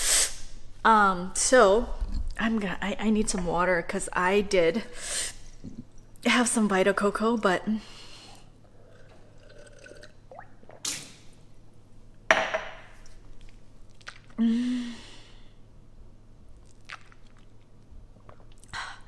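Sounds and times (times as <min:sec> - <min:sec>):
person swallowing water: 0:08.7 - 0:11.0.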